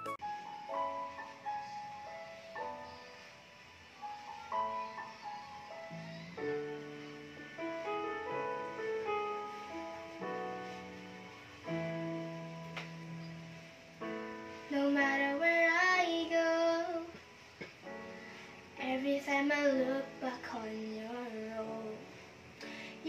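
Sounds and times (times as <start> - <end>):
slow keyboard ballad backing: 0.0 - 23.0
girl singing: 14.6 - 17.4, 18.8 - 23.0.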